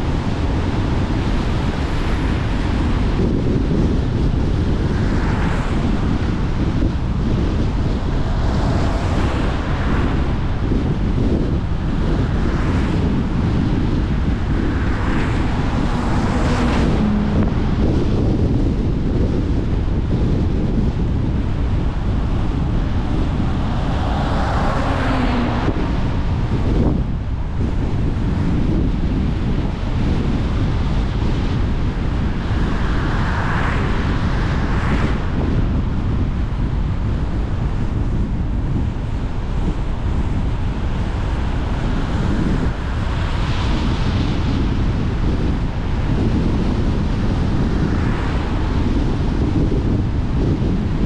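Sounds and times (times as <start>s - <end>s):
tyre and wind noise on wet road: 0.0s - 51.0s.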